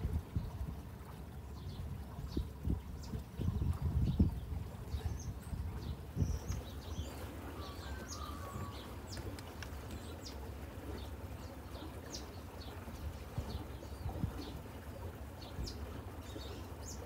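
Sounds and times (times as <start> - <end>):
birds chirping: 0.4 - 17.0
wind rumble: 1.8 - 9.1.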